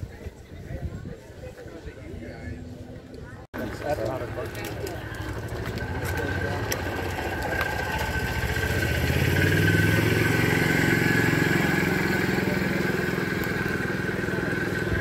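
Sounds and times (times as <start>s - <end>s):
vehicle engine passing by: 3.6s - 15.0s.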